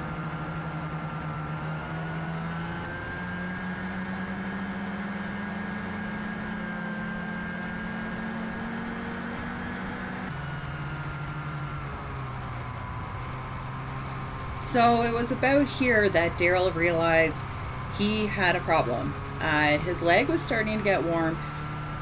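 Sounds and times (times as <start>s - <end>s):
constant engine whine: 0.0s - 22.0s
snowmobile engine running: 10.2s - 22.0s.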